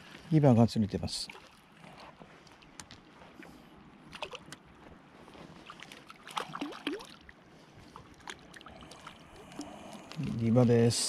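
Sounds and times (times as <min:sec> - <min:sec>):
fish splashing at water surface: 0:05.6 - 0:07.3.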